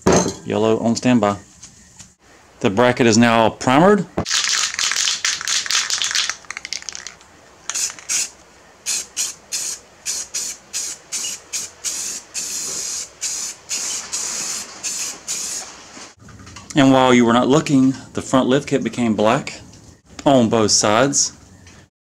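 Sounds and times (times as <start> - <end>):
spray paint can hissing: 4.3 - 15.6.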